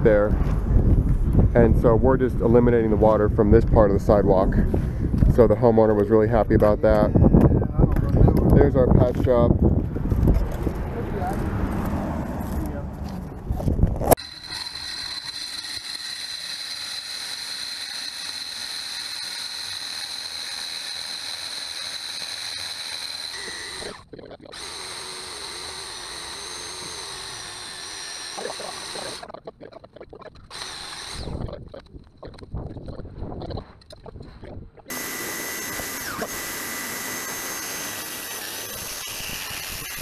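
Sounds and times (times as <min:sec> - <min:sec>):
core drill whining: 0:14.1 - 0:29.3, 0:30.4 - 0:31.5, 0:34.9 - 0:40.0.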